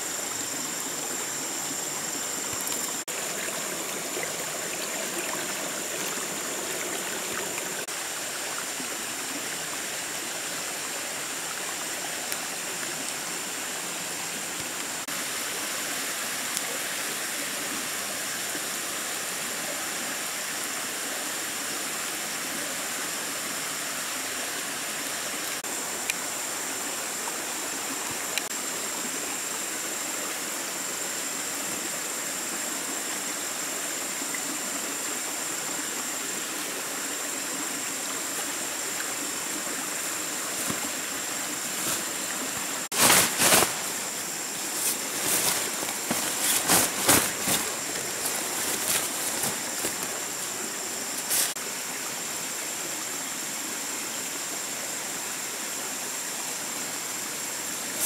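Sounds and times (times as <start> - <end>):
stream flowing over rocks: 0.0 - 58.0.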